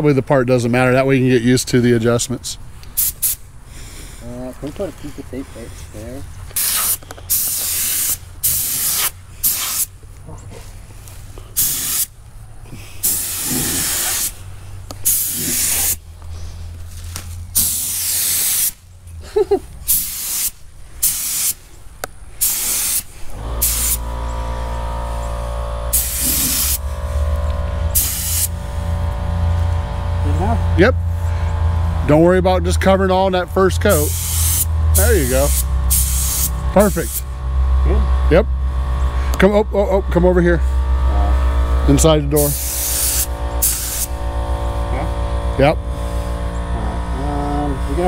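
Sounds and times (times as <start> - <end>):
paint spray gun hissing: 3.0 - 4.0, 6.5 - 10.0, 11.6 - 12.1, 13.0 - 14.4, 15.0 - 16.0, 17.5 - 18.8, 19.9 - 21.7, 22.4 - 28.8, 33.9 - 37.4, 41.6 - 44.8
low machine hum: 23.1 - 48.0.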